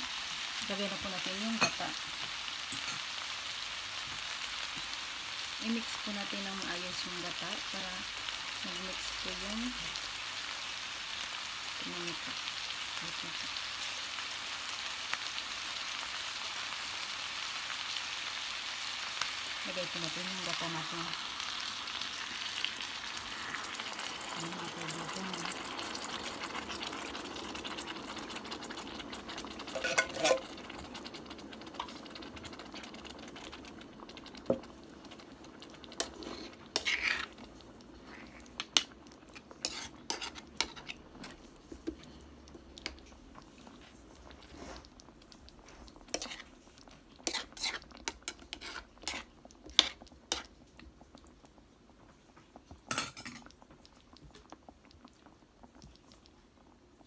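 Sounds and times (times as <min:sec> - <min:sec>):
liquid pouring into pan: 0:25.4 - 0:41.5
metal spoon scraping pan: 0:29.7 - 0:30.5, 0:36.0 - 0:37.4, 0:39.4 - 0:41.4, 0:46.1 - 0:46.5, 0:47.2 - 0:50.5.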